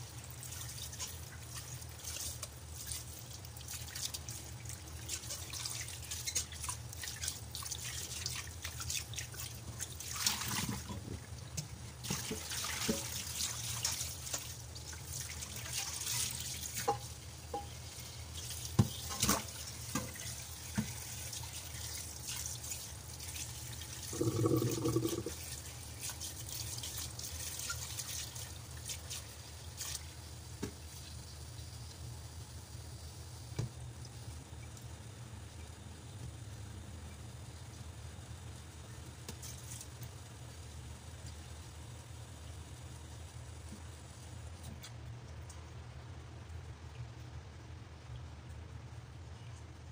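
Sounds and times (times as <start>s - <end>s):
tap water trickling into pot: 0.1s - 31.2s.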